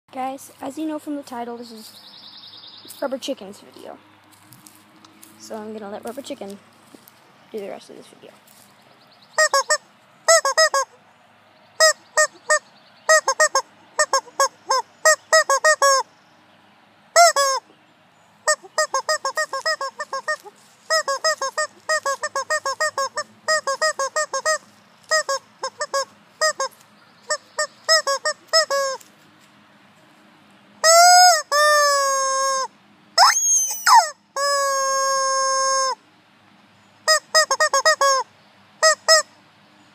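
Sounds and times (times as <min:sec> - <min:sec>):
rubber chicken toy squawking: 0:09.4 - 0:11.0, 0:11.8 - 0:16.1, 0:17.2 - 0:17.7, 0:18.4 - 0:29.1, 0:30.8 - 0:36.0, 0:37.0 - 0:39.3.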